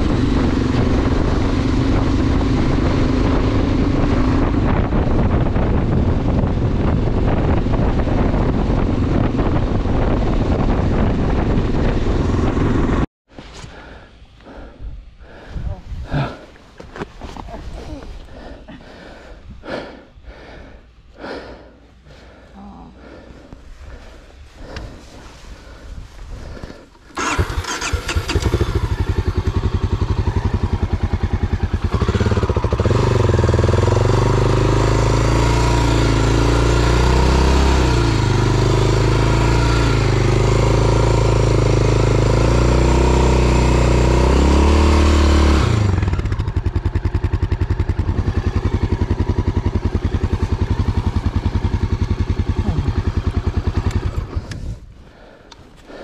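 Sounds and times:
motorcycle engine revving: 0:00.0 - 0:13.1, 0:27.1 - 0:54.9.

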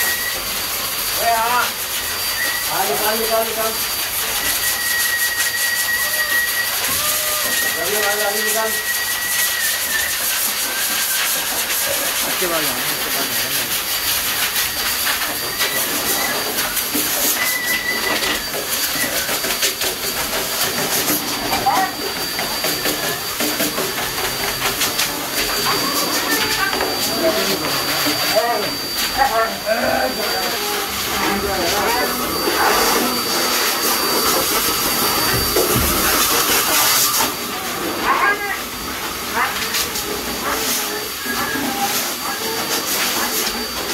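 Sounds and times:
hose dryer blowing air: 0:00.0 - 0:43.9
vacuum cleaner running: 0:00.0 - 0:43.9
high whine: 0:14.8 - 0:42.5.

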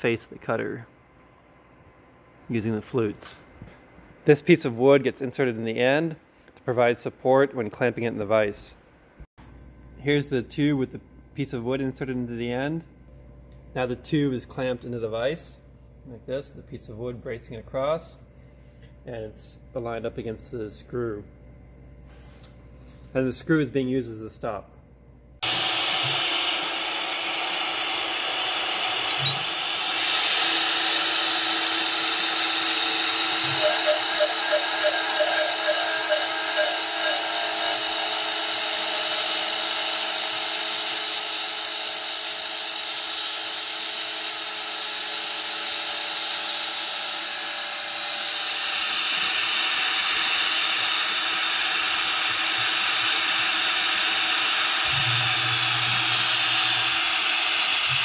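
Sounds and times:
shop vacuums hissing: 0:22.0 - 0:24.6, 0:25.4 - 0:38.0, 0:47.4 - 0:58.0
milling machine spindle whirring: 0:25.4 - 0:58.0.

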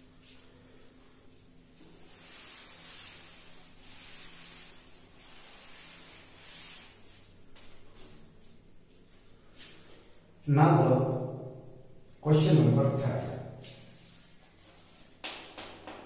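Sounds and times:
cloth wiping a chalkboard: 0:00.1 - 0:10.1, 0:13.2 - 0:15.2.

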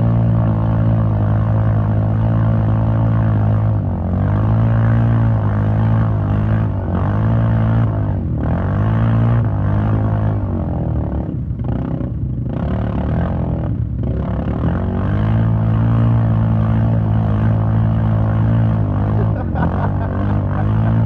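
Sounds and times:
engine revving hard: 0:00.0 - 0:21.0
tires spinning in mud: 0:12.7 - 0:21.0.

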